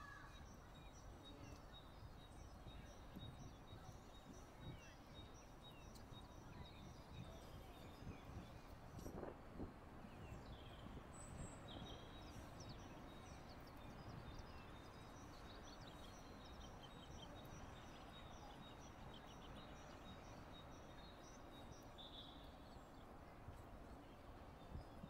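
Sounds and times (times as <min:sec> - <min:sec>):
small birds chirping: 0:00.0 - 0:09.3, 0:10.0 - 0:25.0
low rumble of wind: 0:00.0 - 0:25.0.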